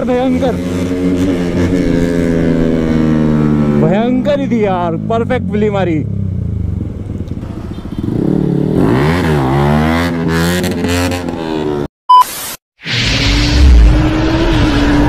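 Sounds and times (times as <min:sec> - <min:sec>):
motorcycle engine revving: 0:00.0 - 0:11.9
loud electronic burst with beep: 0:12.1 - 0:13.3.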